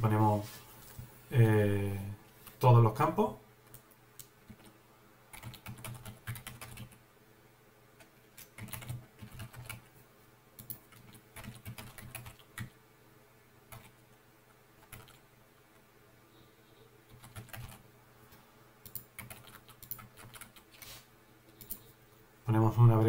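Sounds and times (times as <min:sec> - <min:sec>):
keyboard typing clicks: 0:10.6 - 0:12.7, 0:18.8 - 0:20.6, 0:21.5 - 0:21.9.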